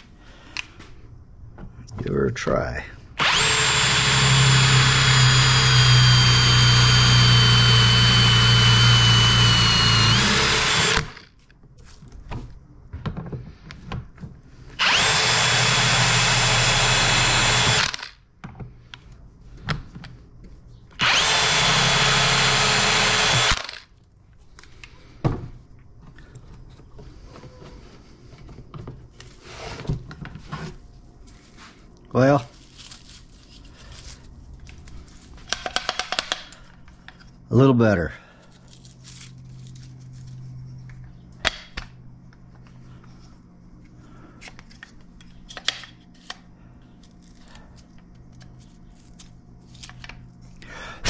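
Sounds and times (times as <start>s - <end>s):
power drill boring wood: 3.2s - 11.3s, 14.8s - 18.2s, 21.0s - 23.9s.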